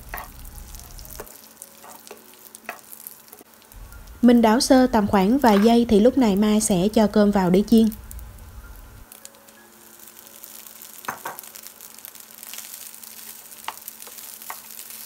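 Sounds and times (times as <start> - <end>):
oil sizzling in a frying pan: 0.0 - 15.0
spatula stirring rice: 12.4 - 15.0.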